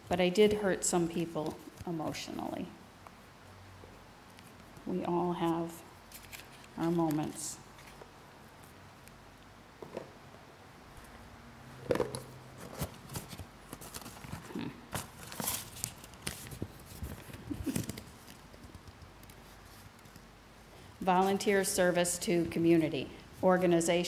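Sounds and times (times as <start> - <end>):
paper rustling and crinkling: 6.0 - 8.8, 11.9 - 20.3.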